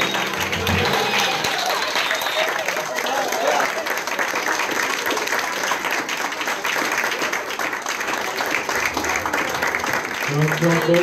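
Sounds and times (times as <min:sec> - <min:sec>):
hand claps close by: 0:00.0 - 0:03.0
audience applauding: 0:00.0 - 0:11.0.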